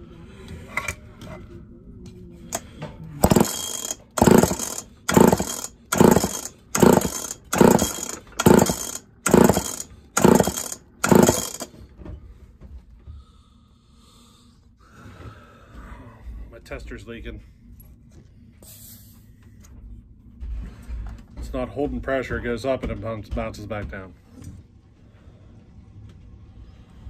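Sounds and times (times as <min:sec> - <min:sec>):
chainsaw recoil starter pulls: 0:03.2 - 0:11.7
engine spinning over without firing: 0:03.2 - 0:11.7.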